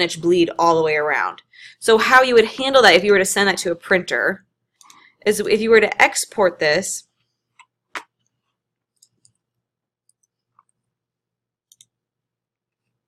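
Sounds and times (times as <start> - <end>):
computer mouse clicks: 9.0 - 9.4, 11.7 - 11.9.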